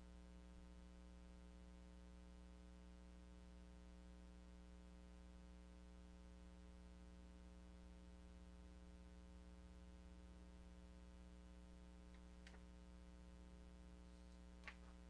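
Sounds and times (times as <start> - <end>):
faint electrical hum: 0.0 - 15.0.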